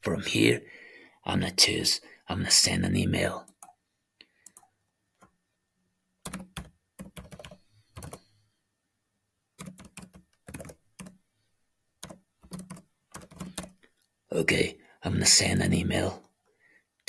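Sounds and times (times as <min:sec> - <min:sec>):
typing on computer keyboard: 0:06.2 - 0:08.3, 0:09.6 - 0:11.2, 0:12.0 - 0:13.8.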